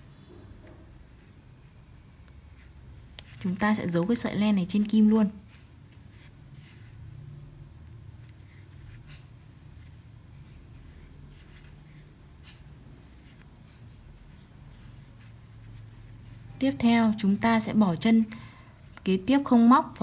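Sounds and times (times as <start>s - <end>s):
low steady hum: 0.0s - 20.0s
yarn scratching and rustling: 2.4s - 16.8s.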